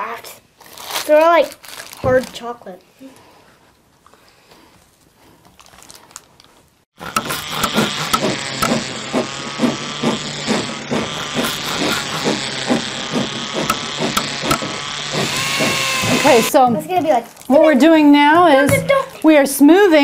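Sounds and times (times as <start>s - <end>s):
rhythmic rasping strokes: 7.0s - 16.6s
steady noisy bed: 7.0s - 16.6s.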